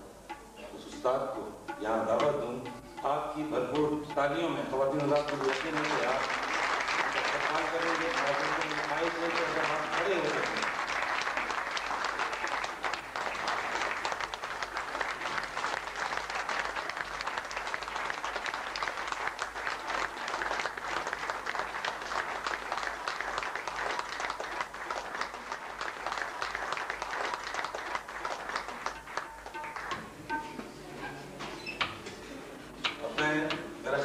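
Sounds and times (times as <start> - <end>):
audience applauding: 4.8 - 30.5.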